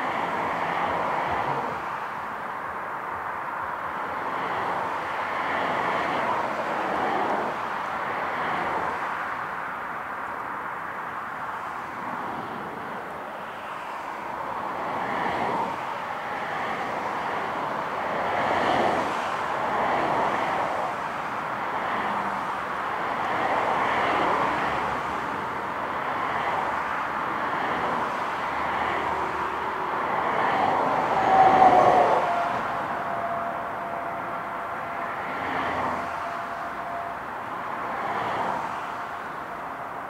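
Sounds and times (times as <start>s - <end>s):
distant jet engines whining: 16.2s - 40.0s.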